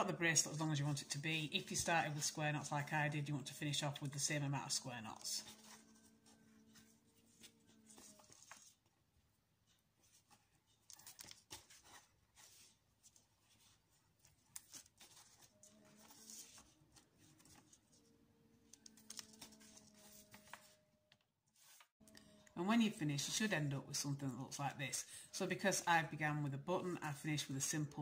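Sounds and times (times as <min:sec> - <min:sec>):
cord rustling and ticking: 0:09.6 - 0:22.2.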